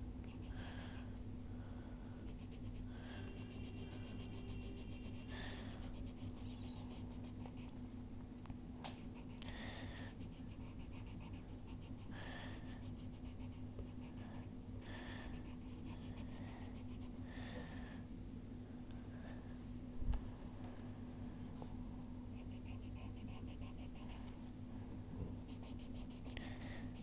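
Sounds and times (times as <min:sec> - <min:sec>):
pencil scratching on paper: 0:02.3 - 0:07.7, 0:10.1 - 0:14.2, 0:15.3 - 0:17.2, 0:22.4 - 0:24.3, 0:25.5 - 0:27.0.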